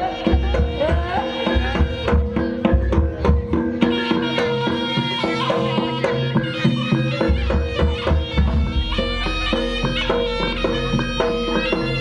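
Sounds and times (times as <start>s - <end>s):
drums beating fast rhythm: 0.0s - 12.0s
gamelan percussion: 0.0s - 12.0s
shawm melody: 0.0s - 12.0s
heavy low bass: 8.4s - 10.0s.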